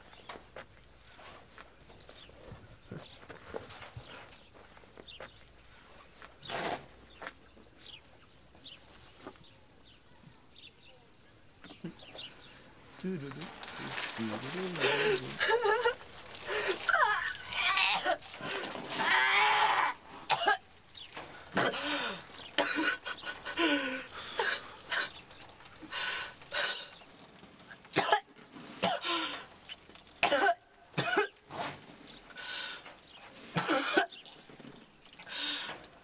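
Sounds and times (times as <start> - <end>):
boy coughing: 20.3 - 20.6, 22.6 - 23.7, 24.4 - 25.1, 28.0 - 29.1, 30.2 - 31.4, 33.6 - 34.1.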